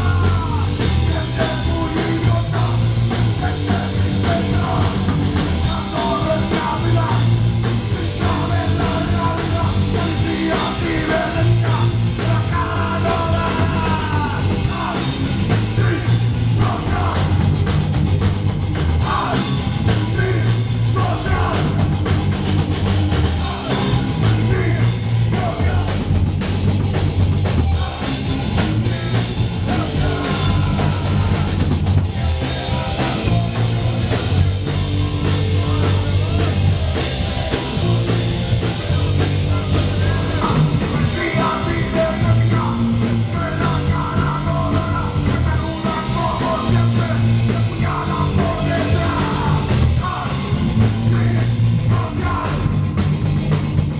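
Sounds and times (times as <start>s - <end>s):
drum kit: 0.0s - 53.9s
electric bass: 0.0s - 53.9s
electric guitar: 0.0s - 53.9s
person singing into microphone: 5.6s - 15.1s, 29.7s - 31.5s, 39.2s - 52.7s.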